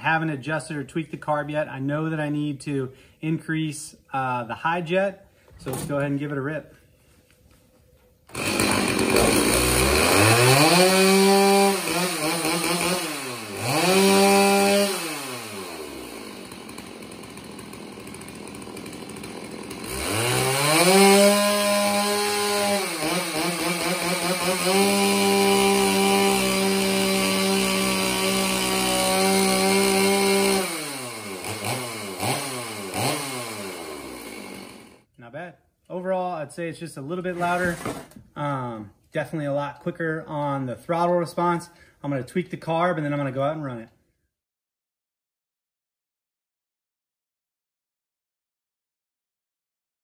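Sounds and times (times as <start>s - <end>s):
chainsaw revving and idling: 8.3s - 35.1s.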